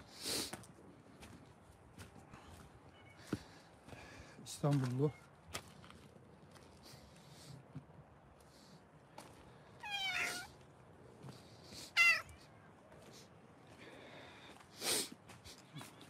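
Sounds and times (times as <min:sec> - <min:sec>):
cats meowing: 0:09.8 - 0:10.6, 0:11.9 - 0:12.4.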